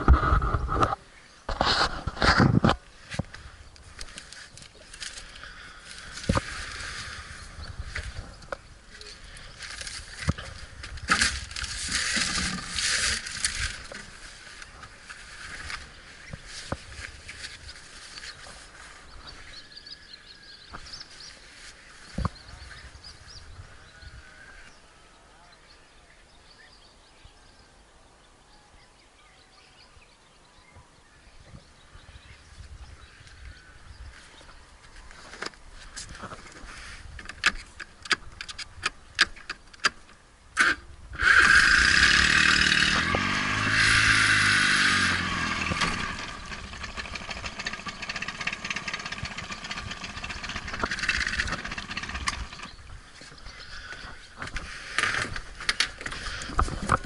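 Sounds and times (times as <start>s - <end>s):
outboard motor running: 9.4s - 17.0s, 41.2s - 53.0s.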